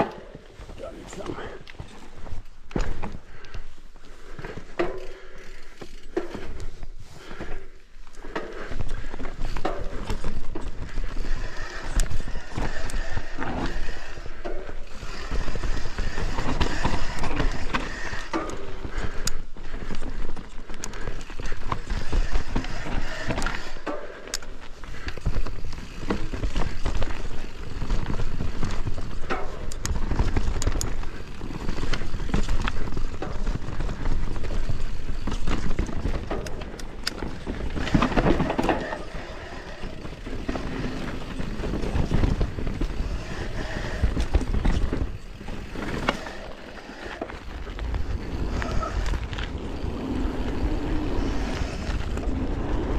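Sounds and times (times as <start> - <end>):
bike rattles and knocks: 0.0 - 52.9
bike tyres over rock and roots: 0.0 - 52.9
wind rumble on microphone: 47.4 - 52.9.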